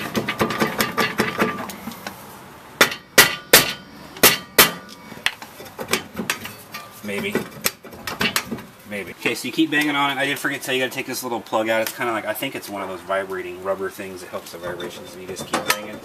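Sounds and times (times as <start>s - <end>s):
hammer striking metal rotor: 2.8s - 4.9s.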